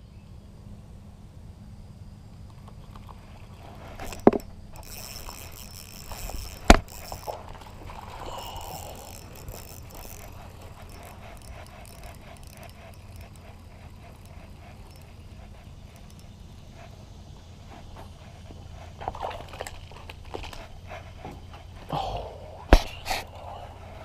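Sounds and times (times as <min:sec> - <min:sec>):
fishing rod rustling: 0:02.6 - 0:16.7, 0:17.5 - 0:21.9.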